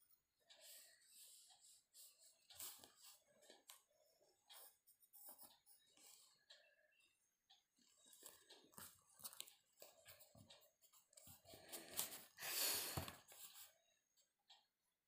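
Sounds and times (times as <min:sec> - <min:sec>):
paper and ruler rustling: 0:00.6 - 0:03.7
pencil scratching on paper: 0:00.6 - 0:06.5.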